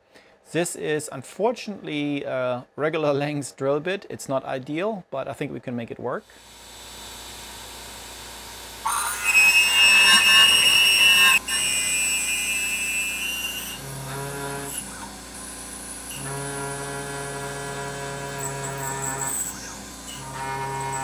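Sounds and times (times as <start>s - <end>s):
drill buzzing tones: 6.3s - 21.0s
drill bit squealing ring: 8.8s - 15.1s, 16.1s - 21.0s.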